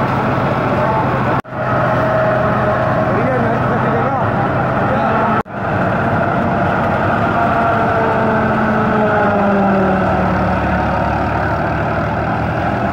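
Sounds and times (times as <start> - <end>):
silage cutter and blower: 0.0 - 12.9
tractor engine running under load: 0.0 - 12.9.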